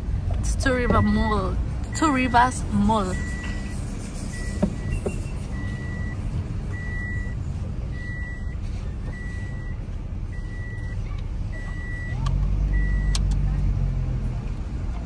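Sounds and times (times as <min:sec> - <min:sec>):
low rumble of car moving slowly: 0:00.0 - 0:15.0
high electronic warning beeps: 0:01.9 - 0:11.0.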